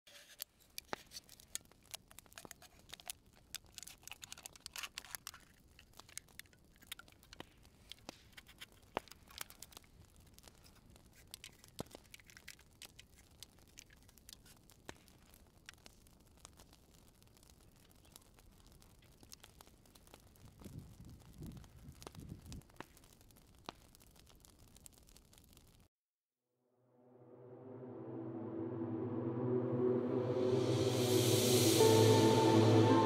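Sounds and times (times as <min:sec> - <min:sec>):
knife cutting aluminium can: 0:02.2 - 0:05.5.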